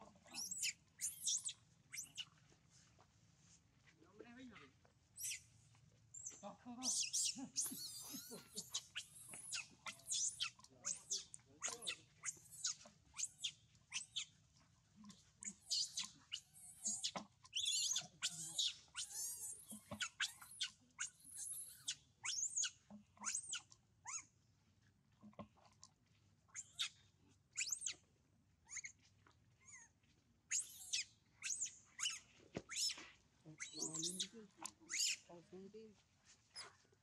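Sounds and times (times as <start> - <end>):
monkeys squealing and screeching: 0.3 - 2.3, 6.2 - 14.3, 15.4 - 24.2, 30.5 - 33.0, 33.6 - 35.3.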